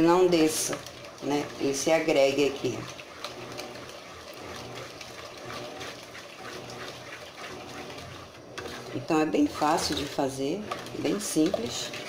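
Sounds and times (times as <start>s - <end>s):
wooden spoon stirring liquid in pot: 0.0s - 12.0s.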